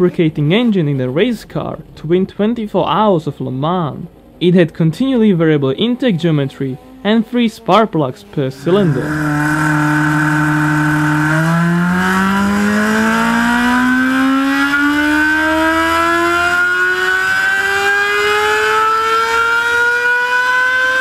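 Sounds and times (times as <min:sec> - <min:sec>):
rotary engine revving: 0:08.4 - 0:21.0.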